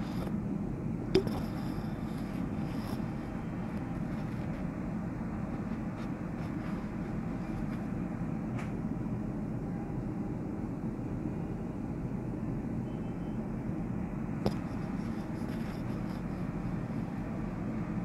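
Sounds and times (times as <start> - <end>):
heavy road traffic rumble: 0.0 - 12.8, 13.4 - 18.0.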